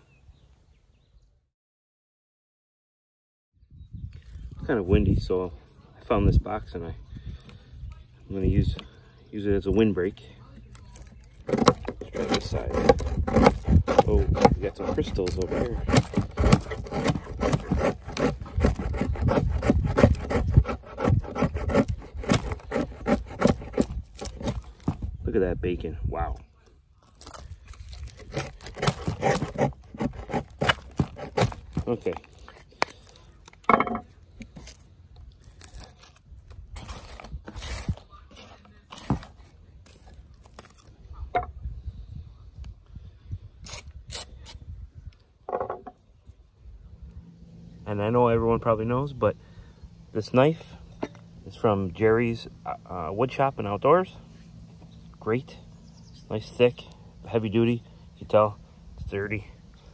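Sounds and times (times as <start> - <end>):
knife shaving wood: 10.5 - 25.2, 27.0 - 33.6, 34.3 - 41.0.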